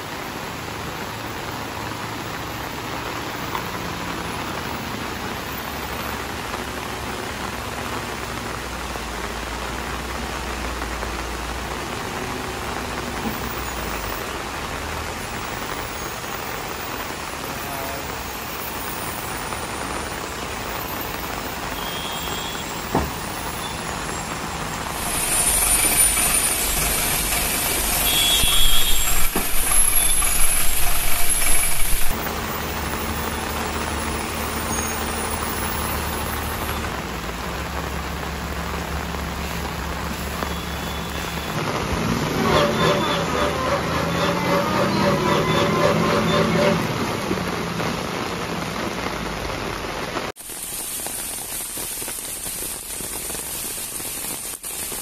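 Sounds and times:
heavy rain hissing: 0.0 - 55.0
air brakes hissing: 22.0 - 32.2.

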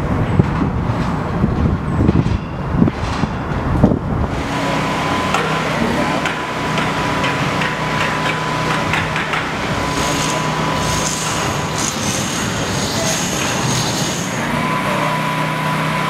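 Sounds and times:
construction machinery running: 0.0 - 16.0
thin high whine: 8.0 - 16.0.

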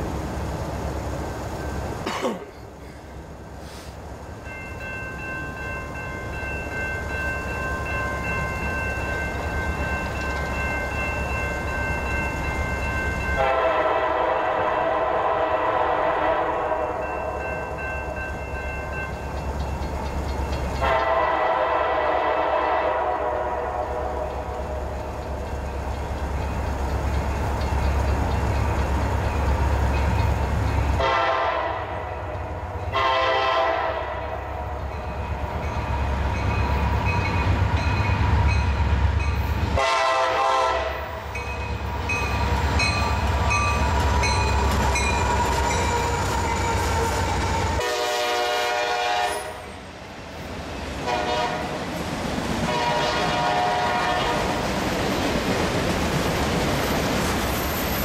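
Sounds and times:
freight cars rolling by: 0.0 - 16.0, 16.7 - 33.5, 34.3 - 48.1, 49.6 - 58.0
train rumbling: 0.0 - 58.0
locomotive air horn blasts: 13.4 - 17.1, 20.8 - 24.5, 31.0 - 32.3, 32.9 - 34.7, 39.8 - 41.2, 47.8 - 49.7, 51.0 - 51.8, 52.7 - 54.6.

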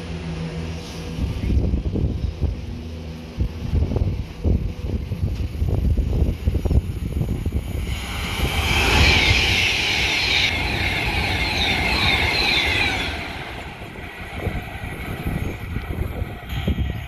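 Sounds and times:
low train rumble: 0.0 - 17.0
train wheels squealing on rails: 7.4 - 17.0.

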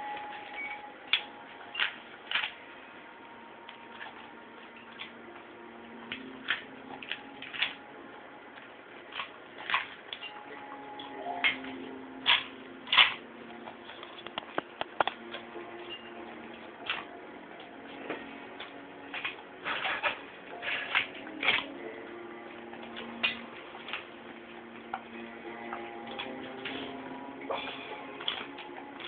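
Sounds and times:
dog crunching crisp food: 6.1 - 7.8, 9.0 - 10.3.

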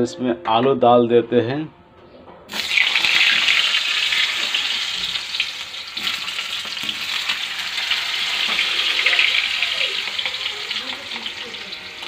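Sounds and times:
potatoes sizzling in hot oil: 2.5 - 12.0.

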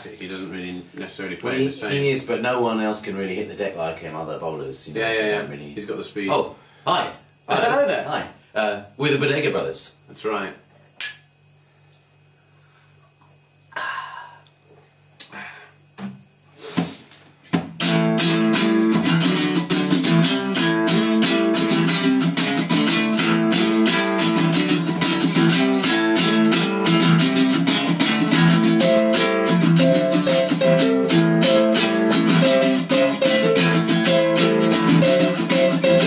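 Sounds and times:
two guitars playing chords: 17.7 - 36.0.

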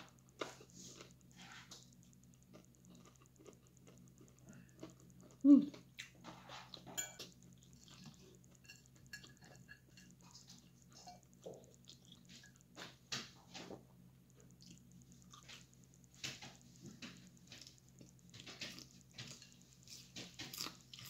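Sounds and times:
faint steady hum: 0.0 - 21.0
soft chewing: 0.0 - 21.0
fork clicking on plate: 7.0 - 11.8.

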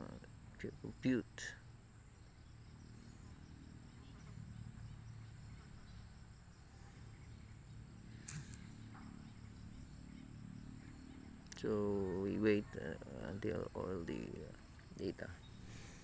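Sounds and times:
low hum: 0.0 - 16.0
sharp click: 8.2 - 8.6.

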